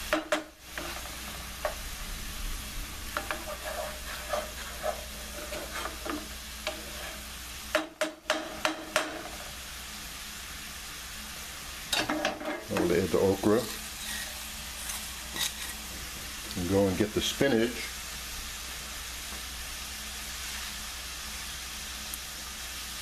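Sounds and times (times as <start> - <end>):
food sizzling in oil: 0.0 - 23.0
wooden spatula scraping pan: 0.6 - 1.8, 3.1 - 7.4, 8.3 - 9.6, 11.9 - 16.1.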